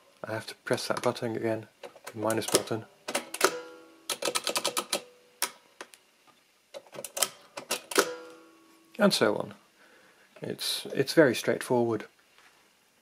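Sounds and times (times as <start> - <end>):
mechanical calculator clattering: 2.4 - 5.1
short metallic ring: 8.0 - 8.6.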